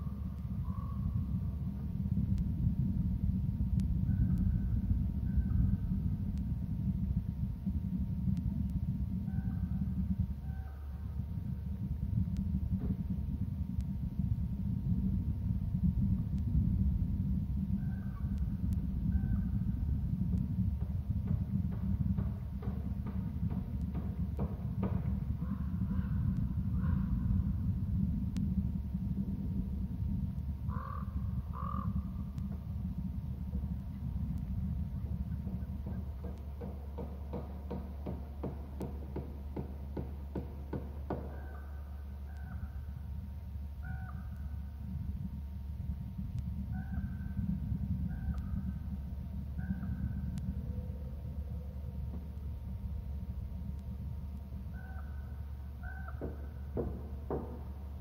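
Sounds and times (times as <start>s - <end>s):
faint bird calls: 0.0s - 1.7s, 3.9s - 6.1s, 9.2s - 11.8s, 17.6s - 20.0s, 24.5s - 27.6s, 30.6s - 32.7s, 40.4s - 43.1s, 43.7s - 44.9s, 46.6s - 52.4s, 54.5s - 57.6s
low rumble: 0.0s - 58.0s
crow cawing: 30.7s - 32.0s, 43.8s - 44.3s, 54.7s - 56.6s.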